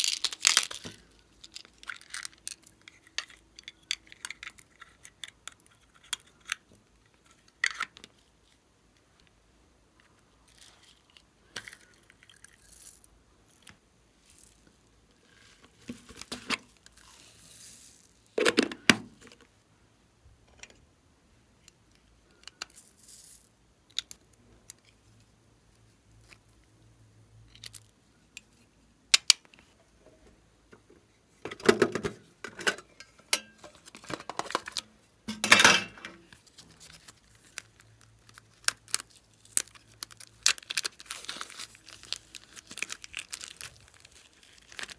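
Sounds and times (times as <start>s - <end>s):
plastic bag crinkling: 0.0s - 4.9s, 36.3s - 44.9s.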